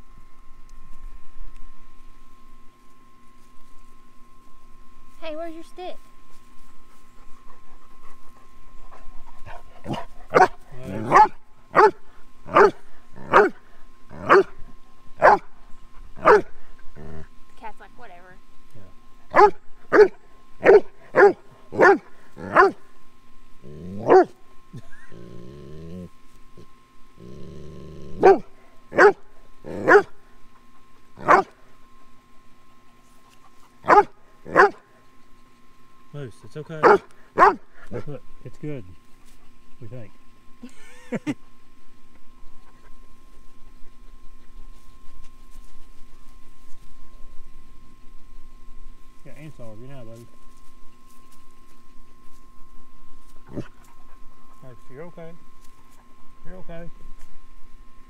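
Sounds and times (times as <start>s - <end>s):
large dog growling: 9.4s - 11.3s, 16.8s - 17.3s, 23.6s - 24.2s, 24.8s - 28.4s
dog barking loudly: 9.9s - 13.6s, 14.2s - 14.5s, 15.2s - 15.5s, 16.2s - 16.5s, 19.3s - 22.8s, 28.2s - 29.2s, 29.8s - 30.1s, 31.2s - 31.6s, 33.9s - 34.8s, 36.8s - 37.6s.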